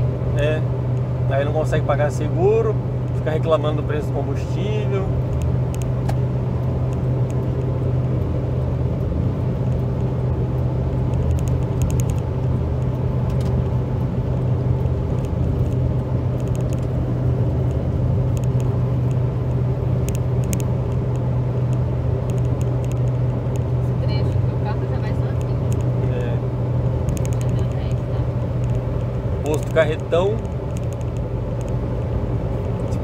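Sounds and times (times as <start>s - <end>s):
car engine and tyre noise: 0.0s - 33.0s.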